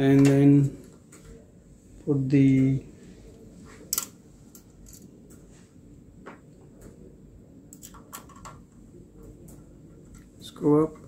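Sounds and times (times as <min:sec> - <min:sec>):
metal parts clicking and tapping: 0:03.9 - 0:05.1.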